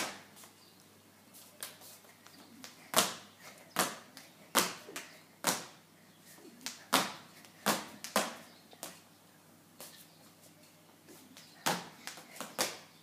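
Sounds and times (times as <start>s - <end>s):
skipping rope slapping tiled floor: 2.6s - 5.7s, 6.6s - 9.0s, 11.4s - 12.9s.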